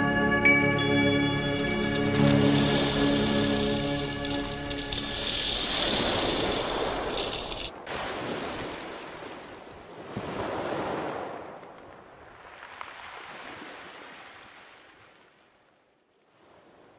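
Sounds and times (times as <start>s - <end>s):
sea waves breaking ashore: 1.4s - 11.6s.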